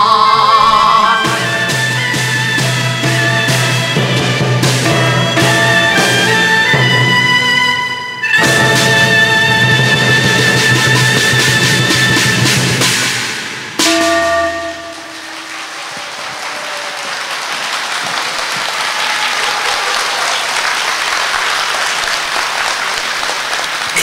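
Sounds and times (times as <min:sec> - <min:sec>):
struck note ringing: 0:08.3 - 0:12.2, 0:13.8 - 0:16.0
audience applause: 0:14.6 - 0:24.0.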